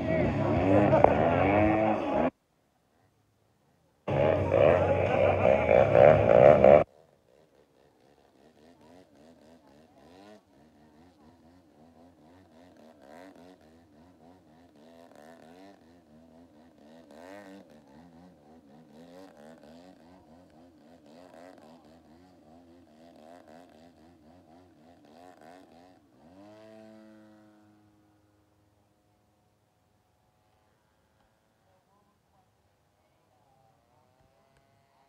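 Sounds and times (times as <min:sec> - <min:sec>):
model plane engine revving: 0:04.1 - 0:28.6.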